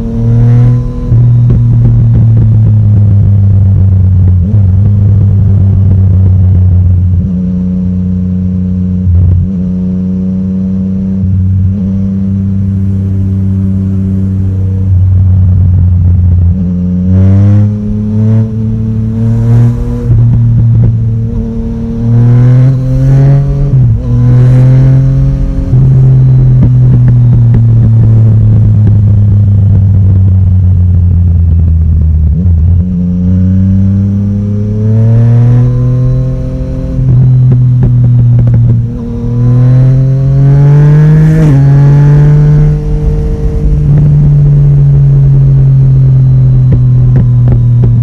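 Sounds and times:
motorcycle engine revving: 0:00.0 - 0:48.0.

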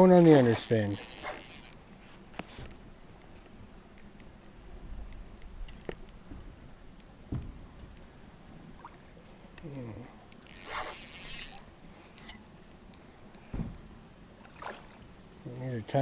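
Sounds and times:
spinning reel clicking: 0:00.3 - 0:01.8, 0:10.3 - 0:12.3.

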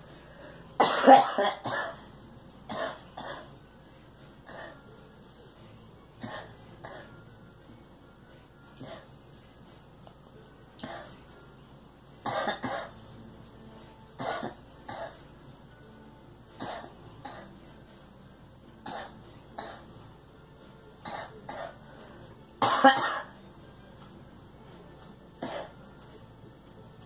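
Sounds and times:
woman coughing: 0:00.8 - 0:02.0, 0:02.7 - 0:03.5, 0:12.3 - 0:12.9, 0:14.2 - 0:15.2, 0:16.6 - 0:17.5, 0:21.0 - 0:21.8, 0:22.6 - 0:23.3, 0:25.4 - 0:25.8.

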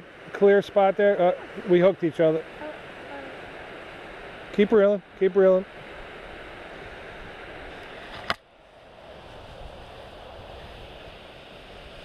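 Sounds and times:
wind noise on microphone: 0:05.7 - 0:12.0.

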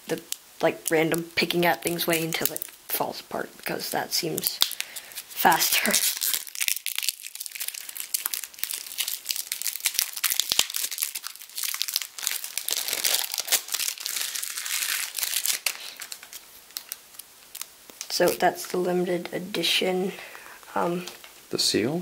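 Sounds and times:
cellophane wrapper crinkling: 0:00.0 - 0:02.8, 0:04.2 - 0:18.6.

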